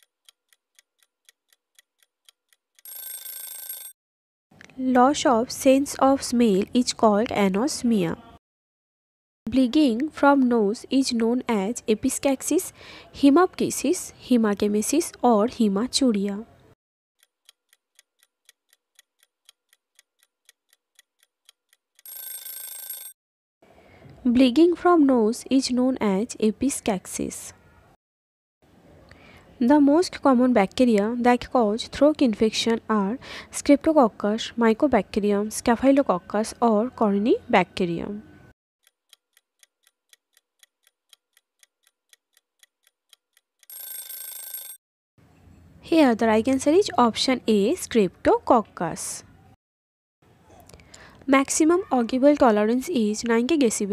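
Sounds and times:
faint clock ticks: 0.0s - 2.8s, 17.2s - 22.2s, 38.8s - 43.8s.

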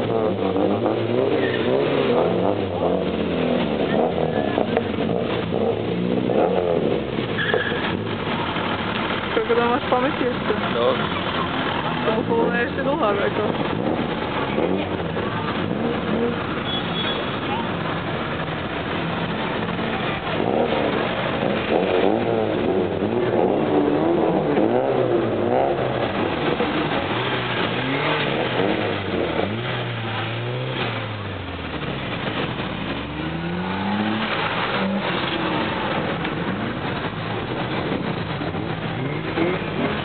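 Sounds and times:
car engines revving: 0.0s - 40.0s.

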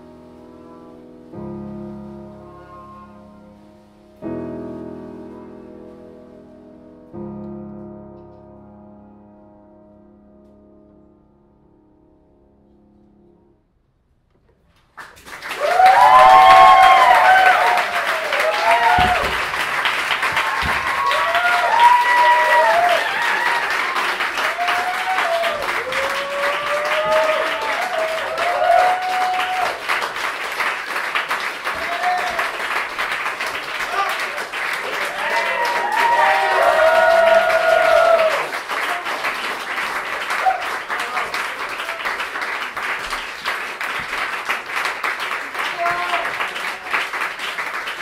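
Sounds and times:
audience clapping: 14.8s - 48.0s
whoops and cheers: 15.5s - 19.5s, 20.2s - 29.9s, 31.7s - 32.6s, 34.8s - 39.2s, 40.3s - 41.2s.

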